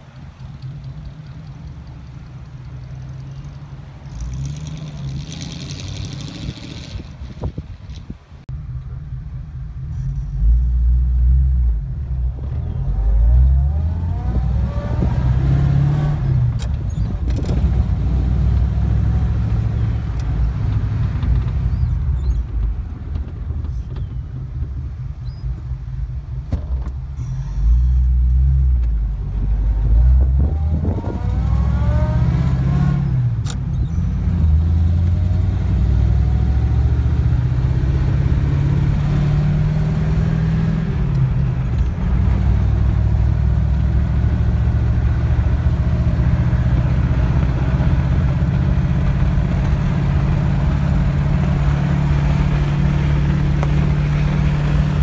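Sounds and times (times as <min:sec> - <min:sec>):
car engine rumbling: 0:00.0 - 0:55.0
engine whine rising in pitch: 0:08.6 - 0:16.6, 0:27.2 - 0:55.0.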